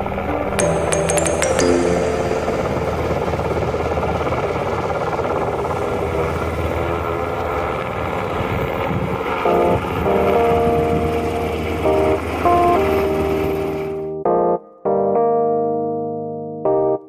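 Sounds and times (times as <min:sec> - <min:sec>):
music: 0:00.0 - 0:03.8, 0:09.5 - 0:17.0
helicopter rotor and engine roar: 0:03.1 - 0:14.0.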